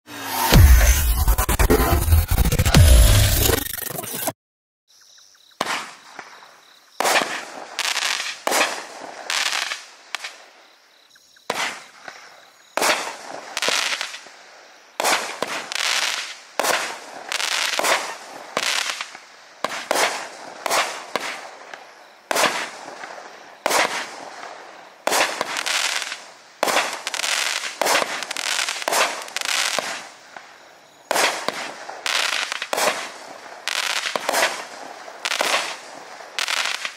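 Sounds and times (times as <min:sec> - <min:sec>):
firework hissing and fizzing: 0:25.0 - 0:30.2, 0:31.1 - 0:36.9.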